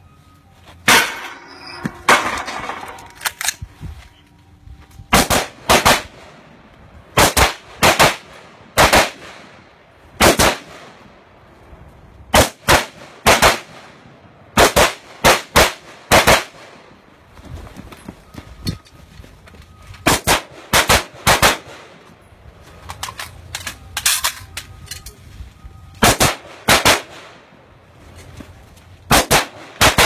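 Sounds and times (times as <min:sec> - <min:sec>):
rifle shots: 0:05.1 - 0:06.3, 0:07.2 - 0:09.5, 0:10.2 - 0:11.0, 0:12.3 - 0:13.9, 0:14.6 - 0:16.8, 0:20.0 - 0:22.0, 0:26.0 - 0:27.4, 0:29.1 - 0:30.0.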